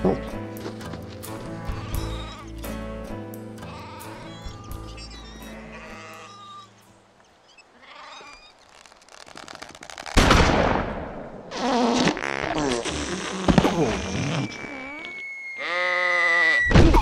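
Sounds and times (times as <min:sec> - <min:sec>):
soft music: 0:00.0 - 0:07.3.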